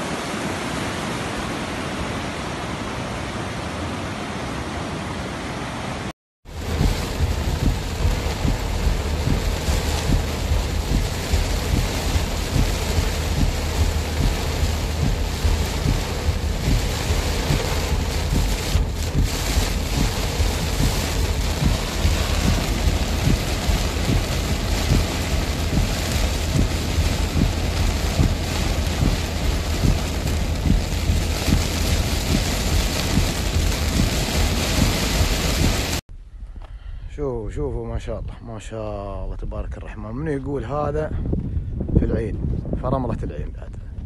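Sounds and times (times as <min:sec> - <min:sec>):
car road rumble: 0:04.2 - 0:36.8
heavy rain hissing on car: 0:06.4 - 0:36.1.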